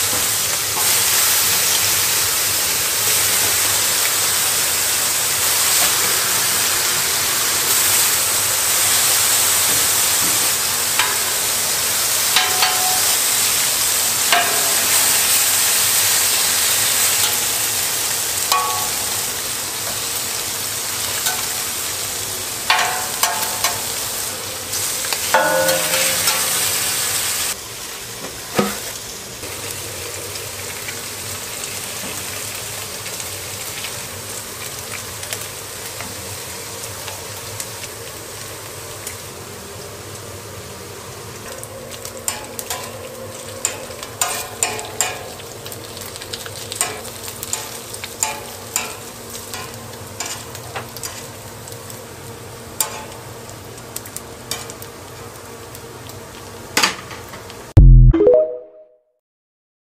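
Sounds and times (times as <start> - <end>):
meat sizzling on a griddle: 0.0 - 57.7.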